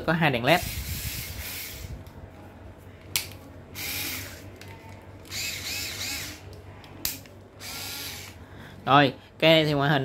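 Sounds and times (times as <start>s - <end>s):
cordless screwdriver whining: 0.7s - 2.0s, 3.8s - 4.5s, 5.2s - 6.4s, 7.6s - 8.4s.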